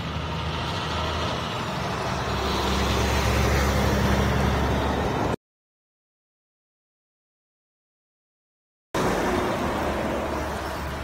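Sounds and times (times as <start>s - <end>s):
truck diesel engine passing: 0.0s - 5.4s, 9.0s - 11.0s.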